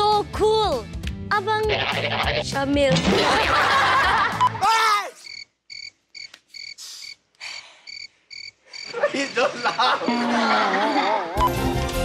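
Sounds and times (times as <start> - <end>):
background music: 0.0 - 4.9, 10.3 - 12.0
cricket chirping: 5.2 - 10.0.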